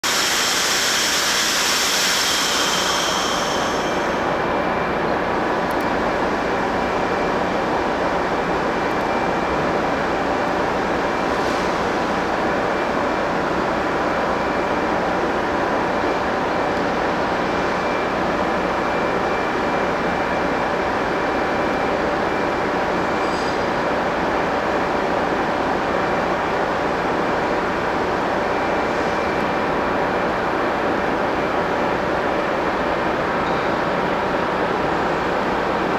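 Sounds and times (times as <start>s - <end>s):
high hiss: 0.0s - 4.3s
locomotive mechanical hum with whine: 0.0s - 35.9s.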